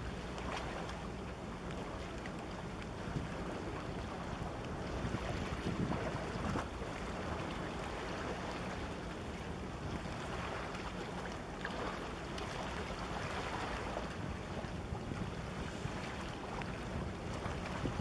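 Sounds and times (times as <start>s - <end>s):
water washing against shore: 0.0s - 18.0s
wind noise on microphone: 4.2s - 7.4s, 9.7s - 10.2s, 13.8s - 18.0s.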